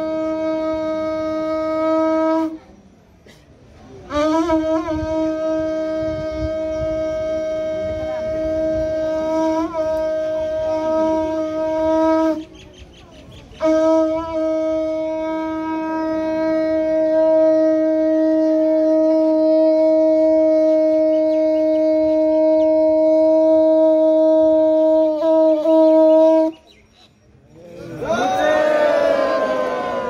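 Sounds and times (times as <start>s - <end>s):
conch shell blasts: 4.1s - 12.4s, 13.6s - 26.5s.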